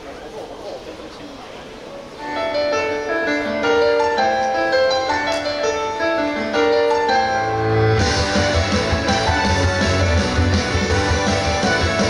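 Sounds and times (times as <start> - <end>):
keyboard melody of held notes: 2.2 - 12.0
pop band with drums and bass: 7.9 - 12.0.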